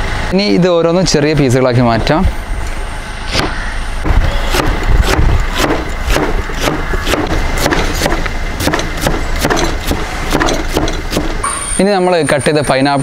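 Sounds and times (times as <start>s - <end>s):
cleaver chopping on wooden board: 4.5s - 11.4s.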